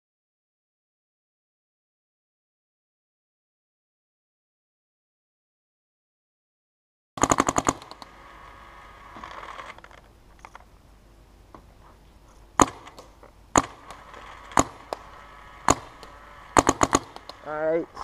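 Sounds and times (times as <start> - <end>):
paintball marker shots: 7.2 - 8.1, 12.6 - 17.6.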